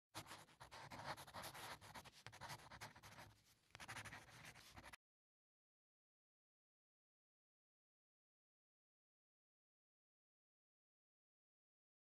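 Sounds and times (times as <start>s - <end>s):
pen scratching on paper: 0.2s - 5.0s.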